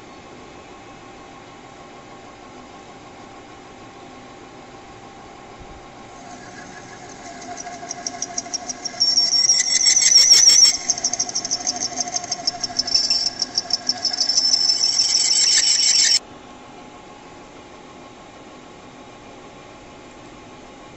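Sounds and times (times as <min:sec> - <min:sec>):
lathe motor hum: 0:06.1 - 0:16.2
lathe tool squealing on metal: 0:06.1 - 0:16.2.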